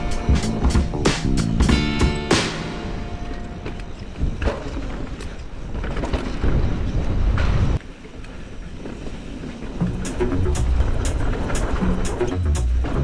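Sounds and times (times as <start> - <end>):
tyre and trail rattle: 7.8 - 13.0.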